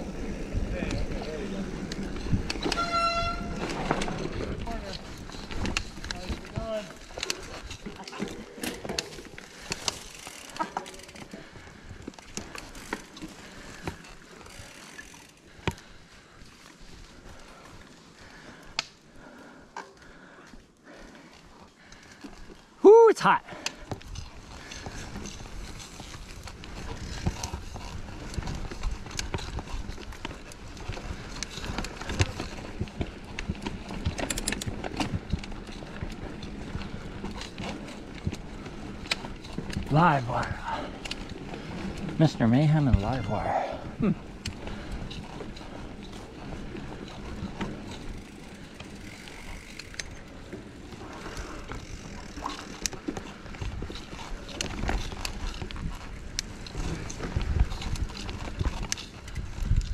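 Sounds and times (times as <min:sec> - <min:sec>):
mountain bike rattling: 0:00.0 - 0:22.9, 0:23.5 - 0:59.9
tyres rumbling on dirt: 0:26.3 - 0:52.0.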